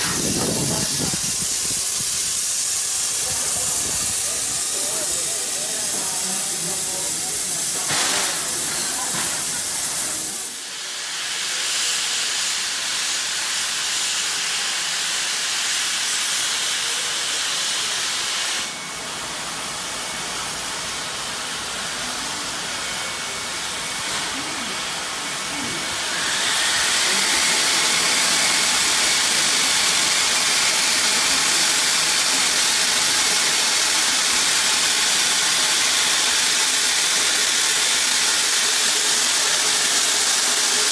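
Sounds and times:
steam hissing: 0:00.0 - 0:40.9.

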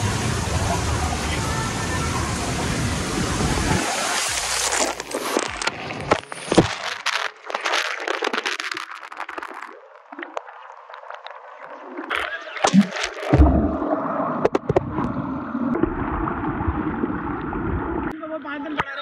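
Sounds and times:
water crackling and gurgling: 0:00.0 - 0:18.2
sharp knocks underwater: 0:12.6 - 0:17.8
low underwater rumble: 0:12.8 - 0:18.1.

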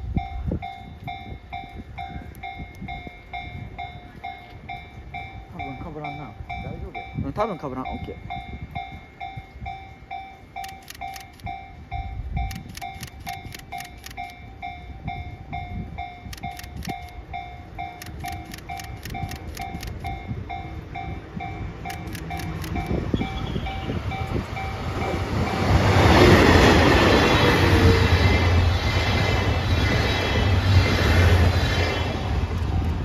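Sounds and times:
diesel train passing: 0:00.0 - 0:33.0.

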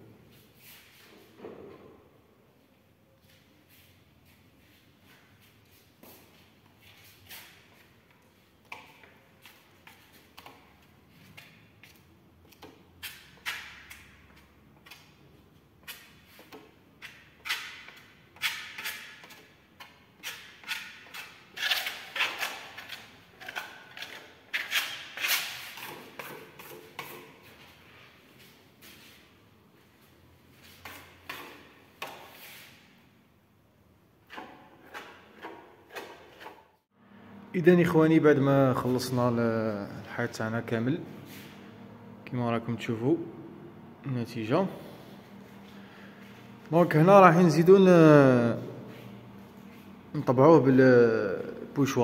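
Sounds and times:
trowel scraping paint on wall: 0:06.8 - 0:15.2, 0:15.8 - 0:27.8, 0:34.2 - 0:36.8.

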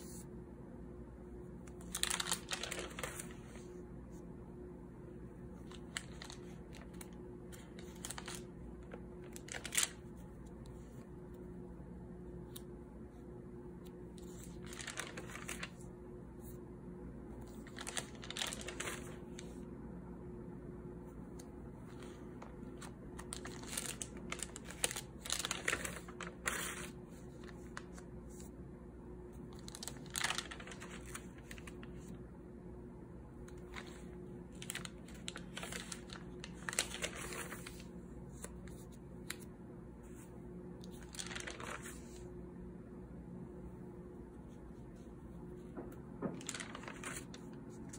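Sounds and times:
paper pages rustling: 0:01.5 - 0:04.2, 0:05.4 - 0:11.4, 0:13.8 - 0:16.6, 0:17.4 - 0:19.6, 0:21.3 - 0:28.6, 0:29.3 - 0:32.2, 0:33.4 - 0:42.3, 0:44.4 - 0:47.9.

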